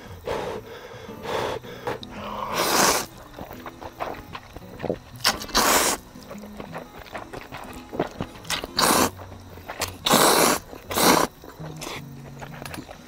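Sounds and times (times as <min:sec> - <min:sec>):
soft background music: 0:00.0 - 0:13.0
person slurping noodles: 0:01.9 - 0:03.2, 0:05.2 - 0:06.0, 0:08.5 - 0:12.0.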